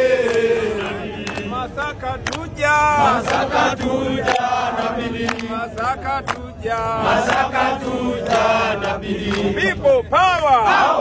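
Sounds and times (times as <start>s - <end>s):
group chanting and singing: 0.0s - 11.0s
sharp hand claps: 0.2s - 2.6s, 3.2s - 4.5s, 5.2s - 6.6s, 7.2s - 7.5s, 8.2s - 9.5s.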